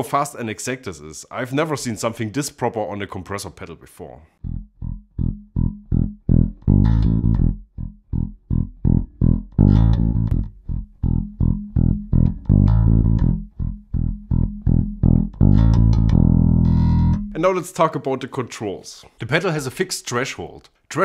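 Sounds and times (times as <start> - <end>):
electric bass guitar riff: 4.4 - 17.4.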